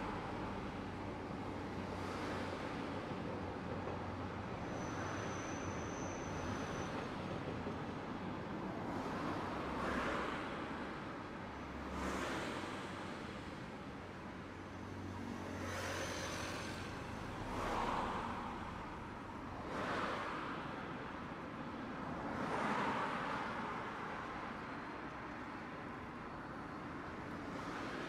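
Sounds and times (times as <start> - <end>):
road vehicles passing: 6.2 - 28.0.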